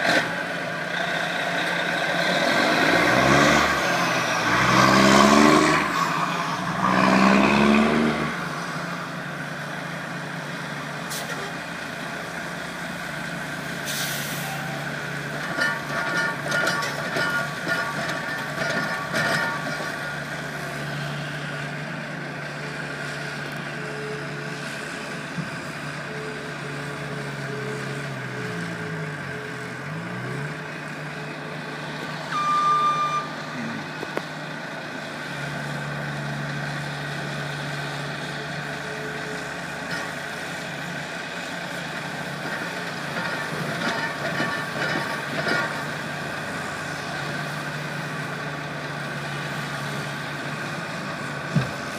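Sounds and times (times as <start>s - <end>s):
diesel engines running: 0.0s - 51.9s
short loud beep: 32.3s - 33.4s.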